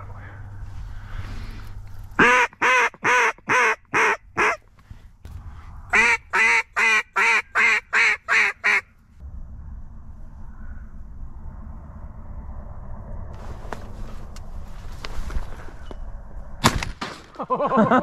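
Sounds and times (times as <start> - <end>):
duck call quacks: 2.2 - 4.6, 5.9 - 8.9.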